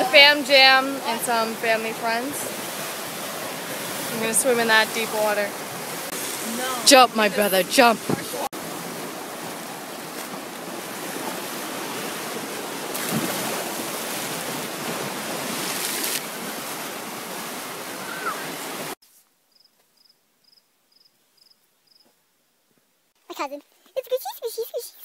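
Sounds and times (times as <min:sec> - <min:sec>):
waves splashing against rocks: 0:00.0 - 0:19.0.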